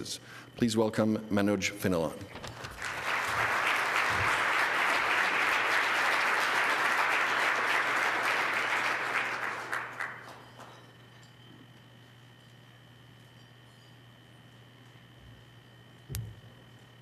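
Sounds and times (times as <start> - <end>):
audience applauding: 2.6 - 10.8.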